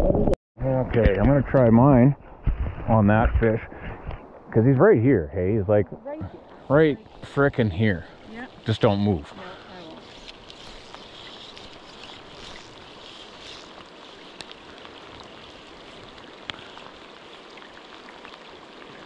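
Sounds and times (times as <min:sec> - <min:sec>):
river water flowing: 0:04.2 - 0:19.0.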